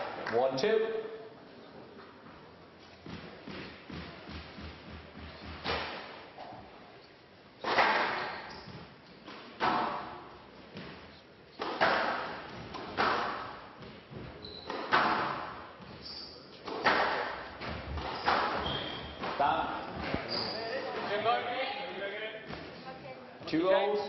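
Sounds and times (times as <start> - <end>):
squash ball cracks echoing: 7.6 - 8.4, 9.4 - 10.3, 11.6 - 13.9, 14.7 - 15.7, 16.7 - 18.6.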